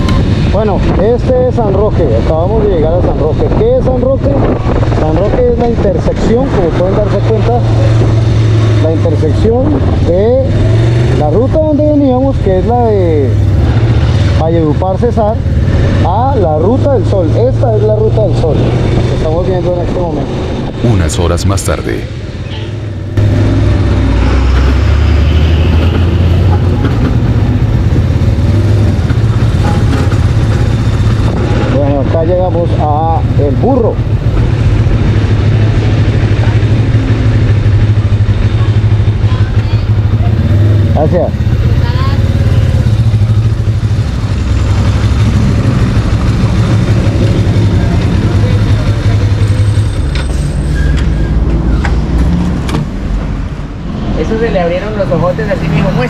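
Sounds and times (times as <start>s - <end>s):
large truck engine: 4.4s - 56.0s
motorcycle riding slowly: 26.3s - 50.1s.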